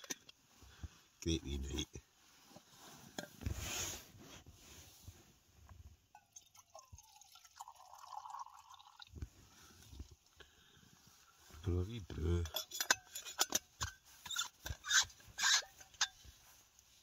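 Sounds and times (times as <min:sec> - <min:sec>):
liquid trickling into a mug: 0:06.2 - 0:09.2.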